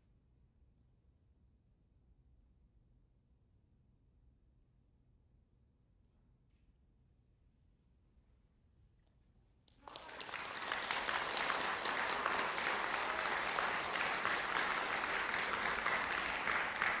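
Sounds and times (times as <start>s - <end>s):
audience applause: 9.7s - 17.0s.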